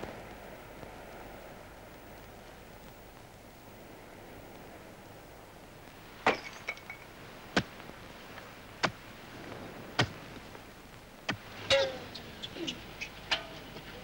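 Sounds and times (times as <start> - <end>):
hoe striking dry earth: 7.5 - 7.8, 8.8 - 9.0, 10.0 - 10.2.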